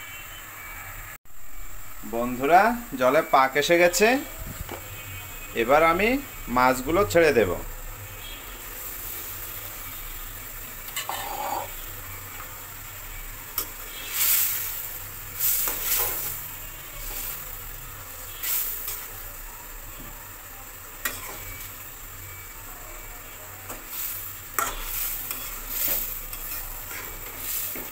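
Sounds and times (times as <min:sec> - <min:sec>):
curry boiling and sizzling: 0:00.1 - 0:27.9
metal spatula scraping a pan: 0:10.8 - 0:11.9, 0:13.6 - 0:17.6, 0:18.3 - 0:19.2, 0:21.0 - 0:21.8, 0:23.7 - 0:27.9.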